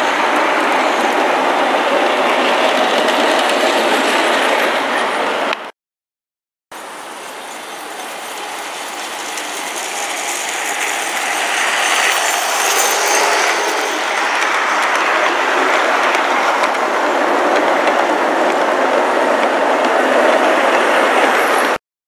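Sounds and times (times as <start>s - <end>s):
model train wheels rattling on rails: 6.8s - 21.8s.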